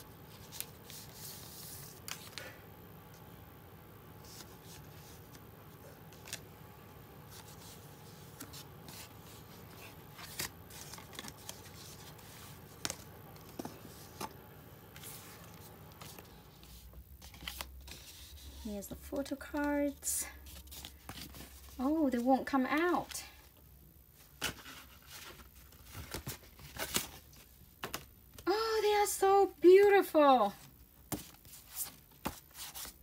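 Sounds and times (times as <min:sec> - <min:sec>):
plastic and paper crinkling: 0:07.2 - 0:23.4.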